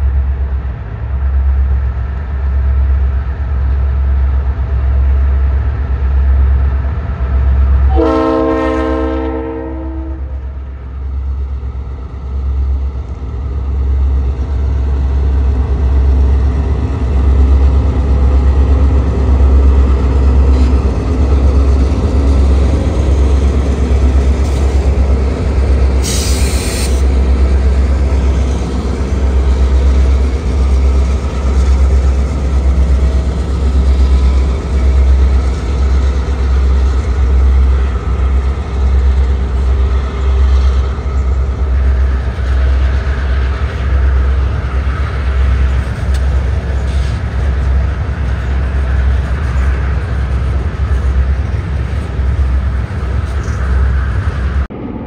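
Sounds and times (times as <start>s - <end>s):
diesel locomotive engine rumble: 0.0s - 55.0s
locomotive horn blast: 7.9s - 10.4s.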